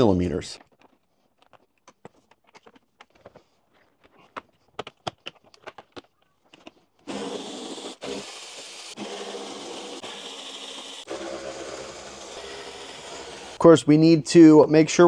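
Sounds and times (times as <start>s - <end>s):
electric screwdriver running: 7.1s - 13.6s.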